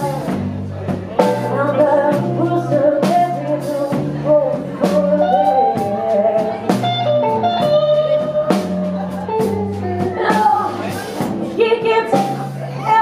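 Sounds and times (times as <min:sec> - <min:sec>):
electric bass line: 0:00.0 - 0:13.0
electric guitar bending notes: 0:05.0 - 0:12.0.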